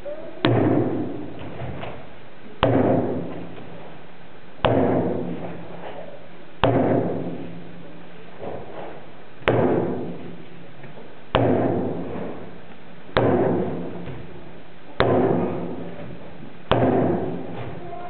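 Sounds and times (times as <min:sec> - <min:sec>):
loud sharp thuds ringing in hall: 0:00.0 - 0:02.0, 0:02.6 - 0:03.7, 0:04.6 - 0:05.7, 0:06.6 - 0:07.8, 0:09.4 - 0:10.4, 0:11.3 - 0:14.4, 0:15.0 - 0:18.0.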